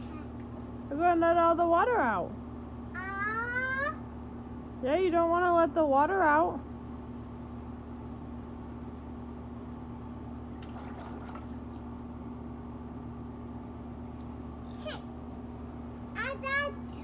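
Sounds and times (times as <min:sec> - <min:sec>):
air conditioner unit humming: 0:00.0 - 0:17.0
faint water splashes: 0:10.6 - 0:12.0.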